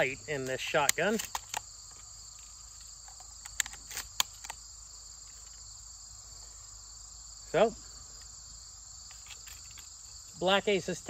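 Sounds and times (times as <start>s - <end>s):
insects chorus: 0.0s - 11.0s
shells clicking into shotgun magazine: 0.4s - 4.6s.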